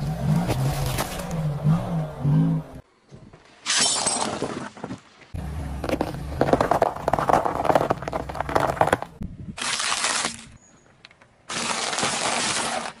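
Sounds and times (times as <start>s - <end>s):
tyre crushing sugar cubes: 5.8s - 10.5s, 11.5s - 13.0s.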